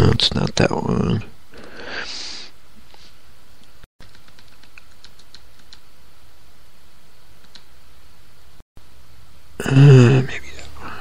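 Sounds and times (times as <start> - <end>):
keyboard keystroke clicks: 4.0 - 5.8, 7.4 - 7.7.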